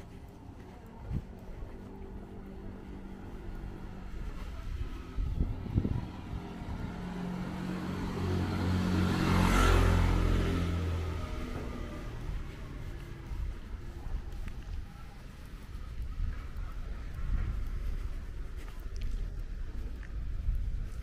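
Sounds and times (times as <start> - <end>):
vehicle passing by: 0.0 - 14.7.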